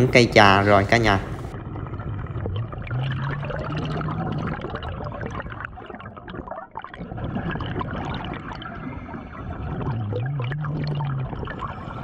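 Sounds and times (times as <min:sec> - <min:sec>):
underwater air bubbling: 0:00.0 - 0:12.0
low wavering hum: 0:01.4 - 0:06.2, 0:07.6 - 0:12.0.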